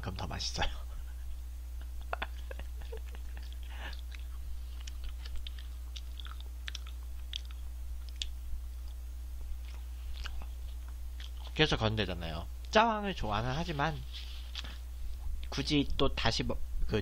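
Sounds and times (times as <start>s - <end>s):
low steady hum: 0.0s - 17.0s
person chewing food: 2.2s - 11.6s.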